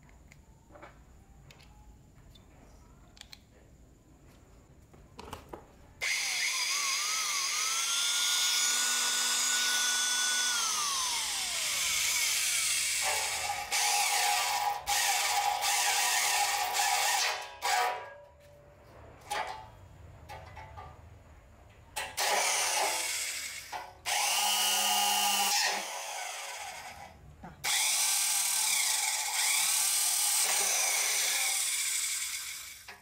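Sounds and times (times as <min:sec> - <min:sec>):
electric drill motor whine: 0:06.0 - 0:17.4, 0:22.2 - 0:32.9
drill bit cutting steel tube: 0:06.0 - 0:18.0, 0:22.2 - 0:33.0.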